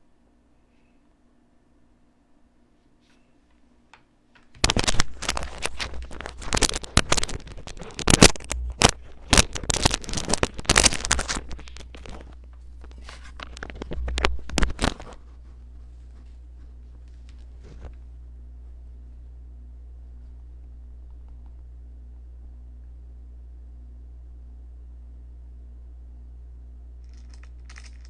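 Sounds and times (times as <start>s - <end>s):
low steady hum: 0.0s - 28.0s
scraping and crackling clicks: 4.5s - 15.3s, 27.0s - 28.0s.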